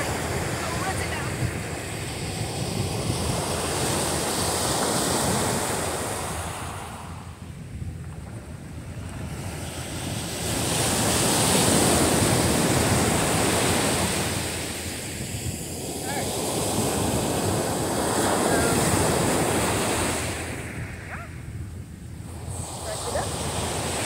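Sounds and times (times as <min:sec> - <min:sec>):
loud surf breaking: 0:09.8 - 0:21.4.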